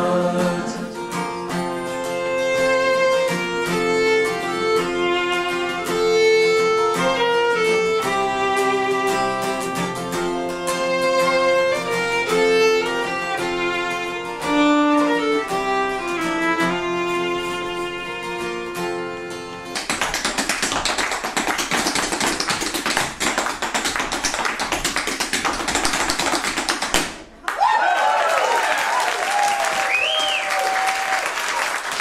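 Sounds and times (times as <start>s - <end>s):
acoustic guitar: 0.0s - 27.4s
fiddle melody: 1.6s - 20.7s
feet tapping on floor: 10.9s - 12.4s, 19.6s - 27.3s.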